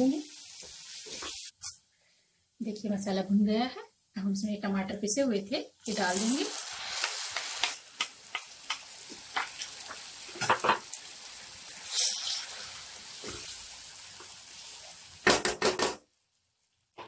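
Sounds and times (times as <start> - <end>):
tomato sizzling in oil: 0.0 - 1.8, 4.8 - 17.0
spatula scraping a pan: 11.8 - 13.5.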